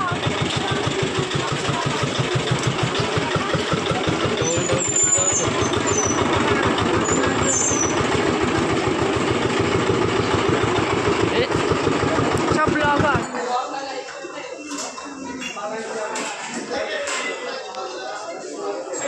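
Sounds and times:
vehicle engine running: 0.0 - 13.3
high squeaks: 4.4 - 8.1.

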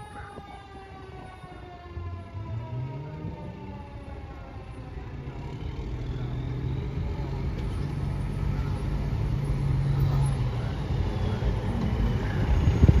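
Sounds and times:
siren winding down: 0.0 - 8.7
diesel engine droning: 0.0 - 13.0.

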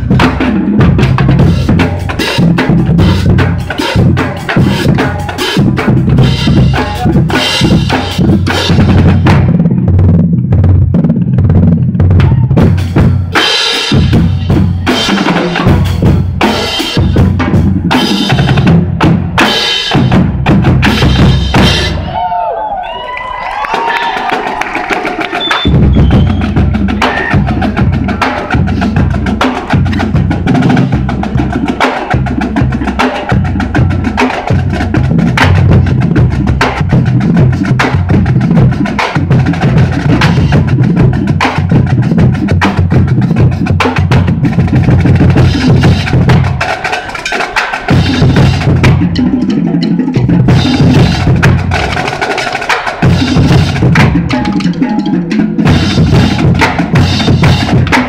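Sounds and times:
snare drums playing rapidly: 0.0 - 22.1, 23.7 - 58.0
bass drum beats: 0.0 - 22.4, 24.1 - 58.0.

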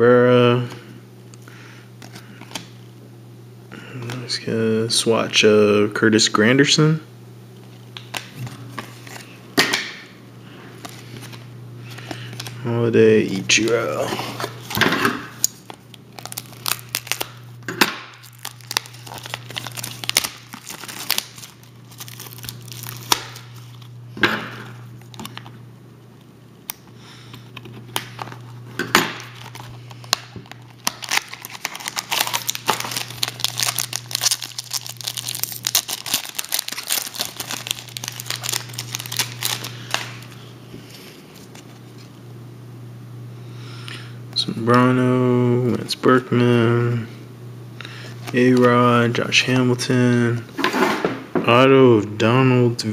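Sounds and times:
low steady hum: 0.0 - 52.9
cards being handled: 7.6 - 10.0, 10.8 - 12.6, 13.2 - 23.9, 26.7 - 42.1
foil wrapper tearing and crinkling: 15.5 - 17.4, 18.0 - 23.9, 27.6 - 40.4.

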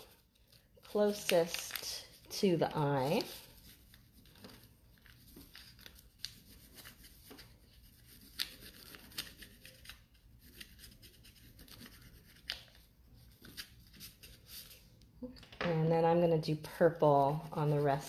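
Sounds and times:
crayon scratching on paper: 16.8 - 18.0.

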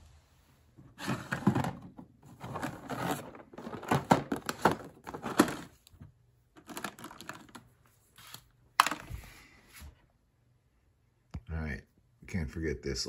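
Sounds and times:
plastic box clattering: 0.9 - 6.0, 6.6 - 7.7, 8.8 - 9.1.

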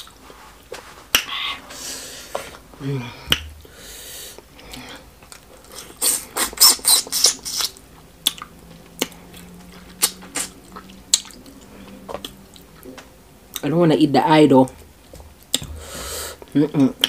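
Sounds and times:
lip smacks: 4.4 - 13.7
wet mouth eating sounds: 4.4 - 13.7.

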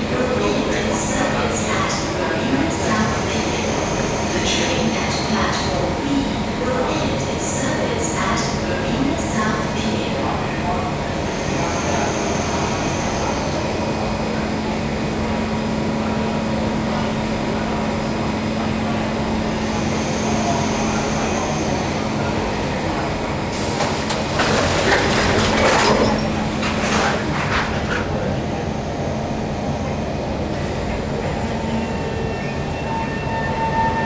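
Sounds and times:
train humming at station: 0.0 - 34.0
train doors sliding shut: 23.5 - 28.3.

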